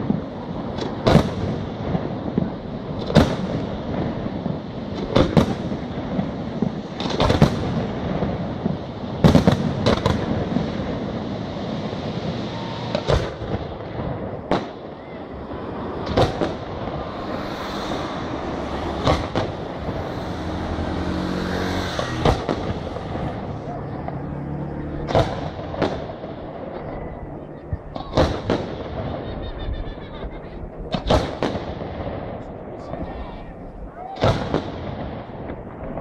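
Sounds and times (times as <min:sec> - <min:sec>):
firework shells bursting: 0:12.9 - 0:21.1.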